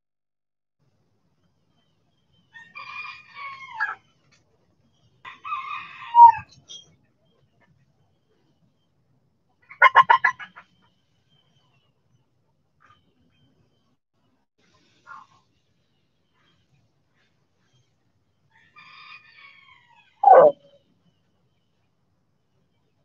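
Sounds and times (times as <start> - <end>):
chickens calling: 5.3 - 6.6, 9.6 - 10.8, 20.2 - 20.6
chickens clucking loudly: 9.6 - 10.7.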